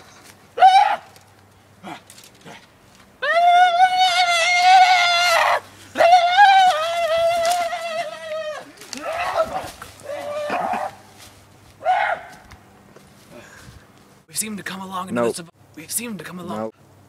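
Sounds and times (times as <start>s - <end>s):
young person yelling: 3.2s - 10.9s.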